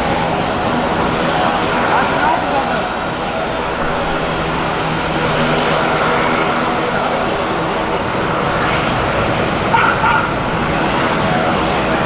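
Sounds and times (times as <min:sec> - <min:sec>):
aircraft engines droning: 0:00.0 - 0:12.0.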